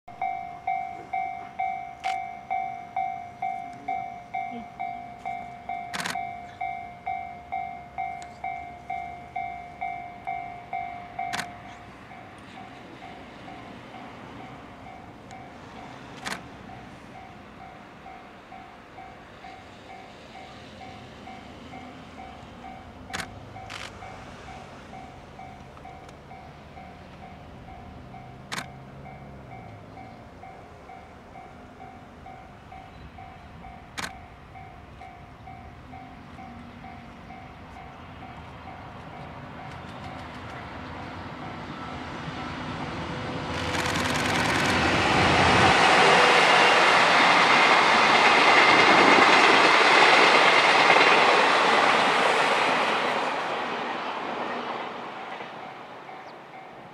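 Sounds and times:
level crossing bell ringing: 0.1s - 16.0s
electric locomotive rumble: 0.2s - 56.9s.

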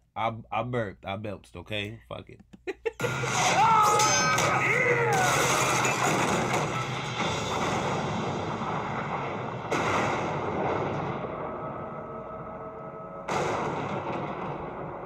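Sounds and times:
heavy booming hits: 5.4s - 15.0s.

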